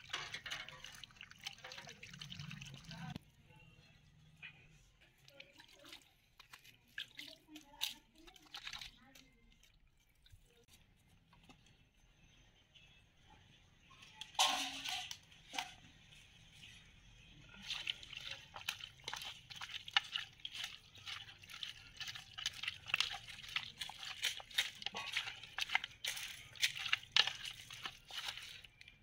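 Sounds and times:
hands squelching meat in water: 0.0 - 3.2, 5.1 - 10.8, 17.4 - 29.0.

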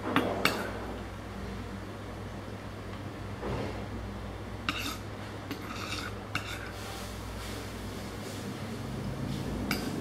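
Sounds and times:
dishes and cutlery clinking: 4.7 - 6.8, 9.6 - 10.0.

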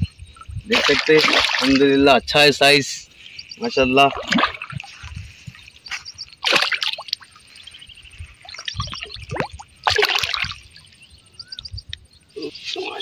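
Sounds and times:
fish splashing at water surface: 0.7 - 1.8, 4.1 - 5.0, 6.4 - 7.4, 8.4 - 10.7.

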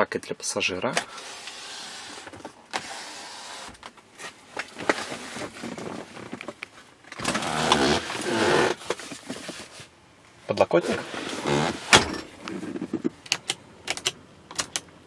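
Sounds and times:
rustling of interior trim: 1.0 - 10.0.

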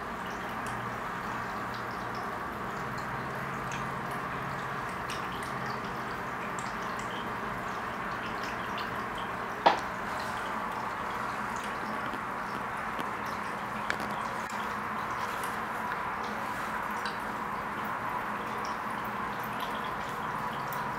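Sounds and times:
aquarium water trickling: 0.0 - 20.9
water drips: 0.0 - 20.9.

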